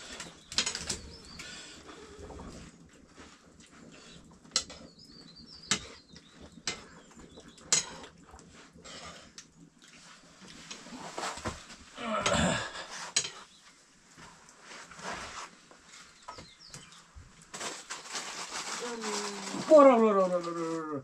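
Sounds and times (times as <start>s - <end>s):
small birds chirping: 0.0s - 8.5s, 15.8s - 17.2s.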